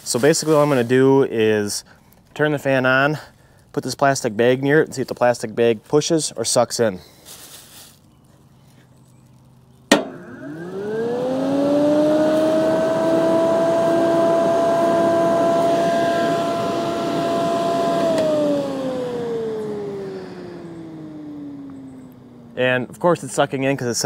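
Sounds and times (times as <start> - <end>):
fan switch click: 9.9 - 10.3
electric fan whining and rushing: 9.9 - 24.0.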